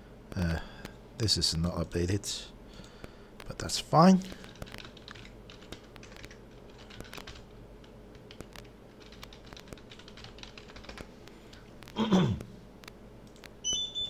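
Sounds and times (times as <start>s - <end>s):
computer keyboard keys clicking: 4.4s - 11.6s, 12.8s - 13.8s.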